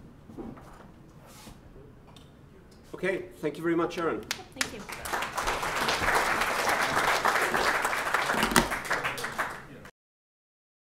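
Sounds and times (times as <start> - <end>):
audience applauding: 4.6 - 9.9.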